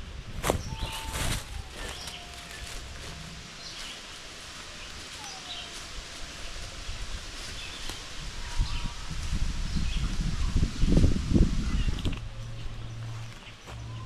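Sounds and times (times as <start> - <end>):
low steady rumble: 0.0 - 5.0, 8.1 - 14.0
footsteps on forest floor: 0.4 - 6.6, 12.4 - 14.0
faint bird calls: 0.6 - 9.2.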